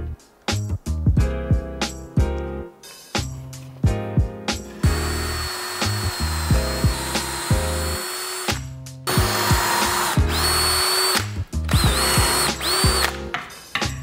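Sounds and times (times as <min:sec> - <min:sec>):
music with a regular beat: 0:00.0 - 0:14.0
drill motor whine: 0:04.7 - 0:13.1.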